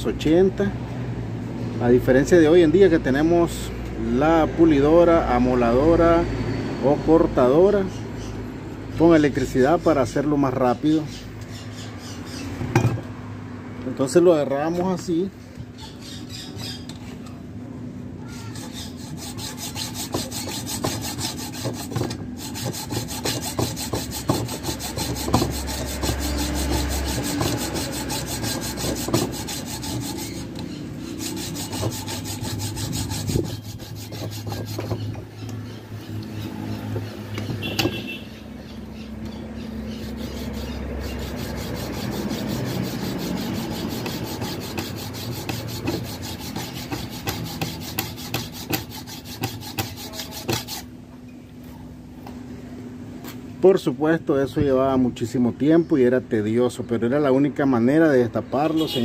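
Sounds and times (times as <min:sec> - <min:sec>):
hacksaw cutting steel: 0:18.5 - 0:35.2, 0:39.9 - 0:50.9.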